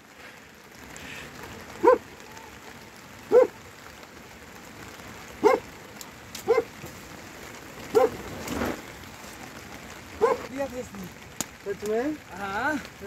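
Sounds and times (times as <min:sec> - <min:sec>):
rain hissing: 0:00.0 - 0:13.0
dog barking: 0:01.8 - 0:02.1, 0:03.3 - 0:03.6, 0:05.4 - 0:05.7, 0:06.4 - 0:06.7, 0:07.9 - 0:08.2, 0:10.2 - 0:10.5.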